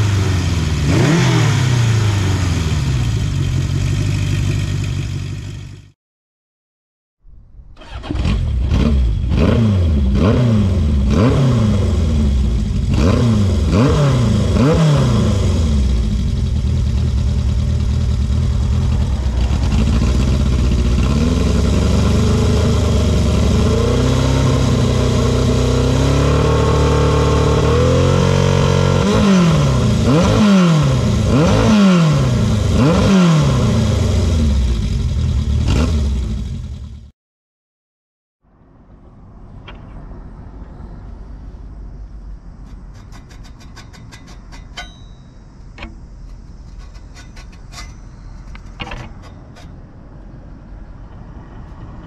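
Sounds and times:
motorcycle engine revving: 0.0s - 6.0s, 7.8s - 37.1s.

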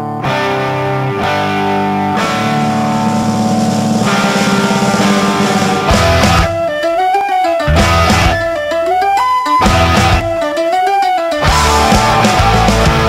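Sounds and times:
rock music with distorted guitar: 0.0s - 13.0s.

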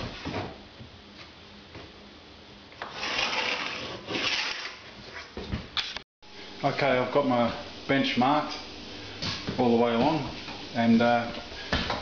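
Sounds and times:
scratchy rubbing on benchtop: 2.9s - 5.2s.

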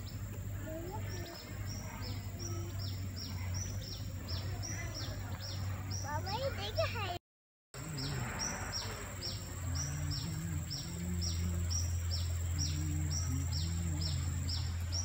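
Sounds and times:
steady low hum: 7.8s - 15.0s.

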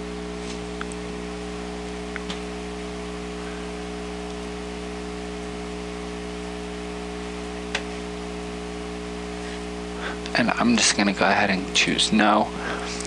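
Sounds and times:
electrical hum with hiss: 0.0s - 13.0s
sharp click: 7.7s - 7.9s.

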